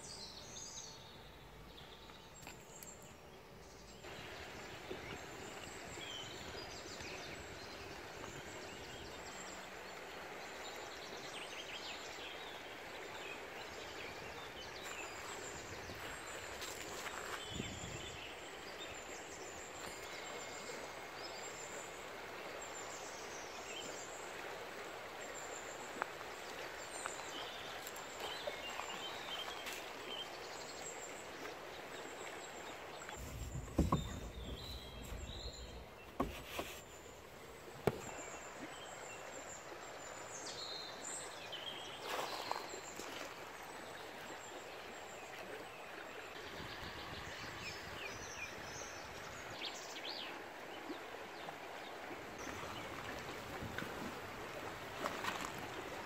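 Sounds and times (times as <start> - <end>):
river water rushing: 4.0 - 17.4, 18.2 - 46.6, 47.8 - 56.0
small birds chirping: 27.0 - 39.4.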